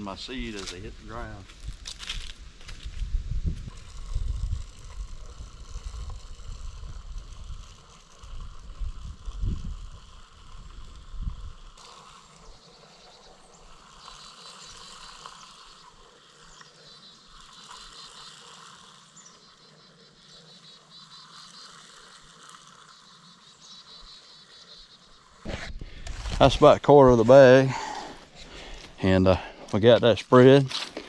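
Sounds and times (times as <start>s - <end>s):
high chirping: 12.2s - 25.4s.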